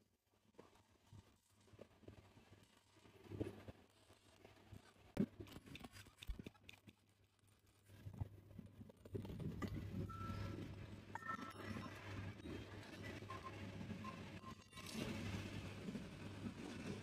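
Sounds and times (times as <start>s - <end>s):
faint low hum: 0.0s - 17.0s
rumbling clatter: 14.7s - 17.0s.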